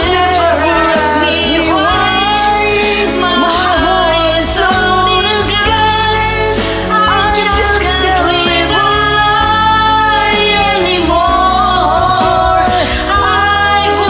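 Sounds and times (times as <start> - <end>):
karaoke backing track: 0.0 - 14.0
man and woman singing duet: 0.0 - 14.0.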